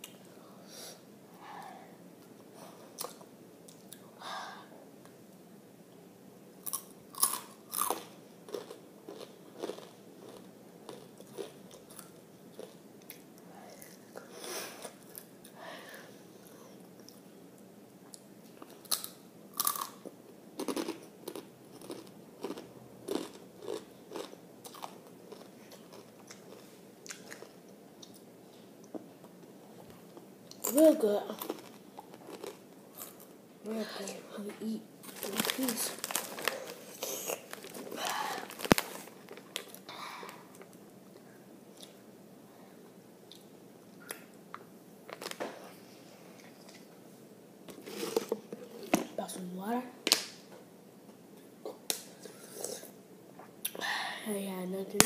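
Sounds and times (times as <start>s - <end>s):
crunching and chewing chips: 6.6s - 13.2s, 18.5s - 28.2s, 30.5s - 33.3s, 35.0s - 39.9s, 45.1s - 45.4s.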